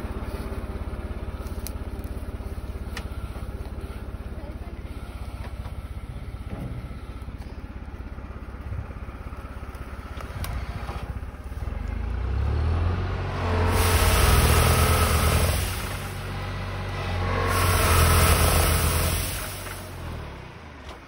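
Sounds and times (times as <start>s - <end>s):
branches and leaves rattling: 0.0s - 4.1s
hydraulic tree shaker running: 13.7s - 20.2s.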